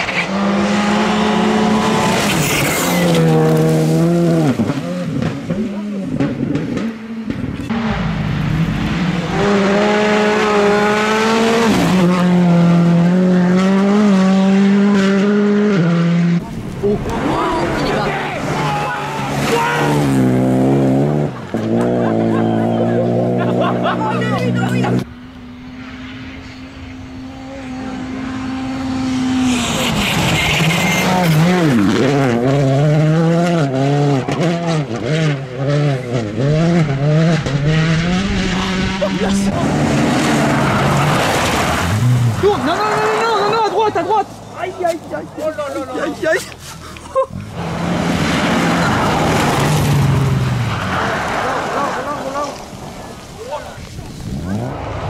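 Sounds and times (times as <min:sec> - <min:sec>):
car engine at high revs: 0:00.0 - 0:45.8, 0:46.5 - 0:55.0
tyres sliding on gravel: 0:39.2 - 0:55.0.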